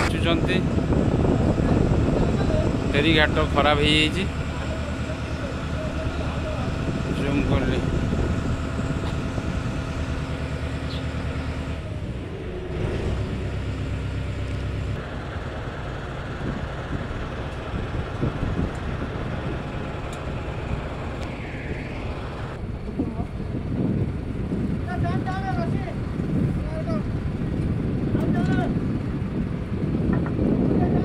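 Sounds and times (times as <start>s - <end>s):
motorboat engine running: 0.0s - 31.0s.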